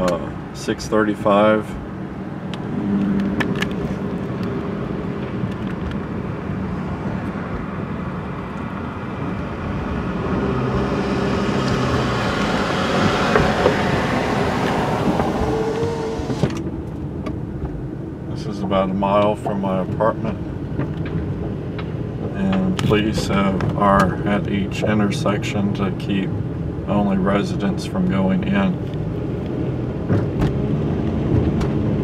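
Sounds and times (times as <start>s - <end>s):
car engine and tyre noise: 0.0s - 32.0s.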